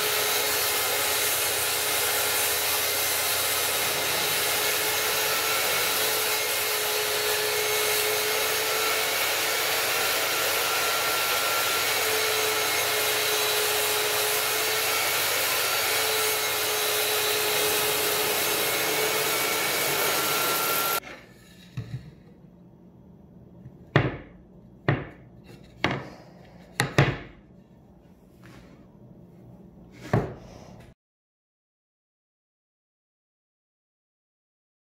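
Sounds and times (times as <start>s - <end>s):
table saw cutting board: 0.0s - 22.0s.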